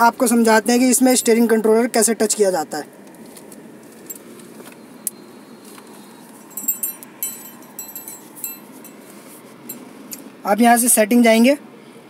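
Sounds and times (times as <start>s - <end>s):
low background noise: 0.0s - 12.0s
metal parts clinking: 6.5s - 9.1s.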